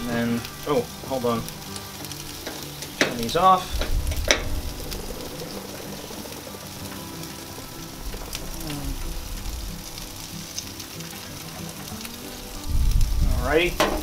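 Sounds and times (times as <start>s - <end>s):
chicken sizzling on a grill: 0.0s - 14.0s.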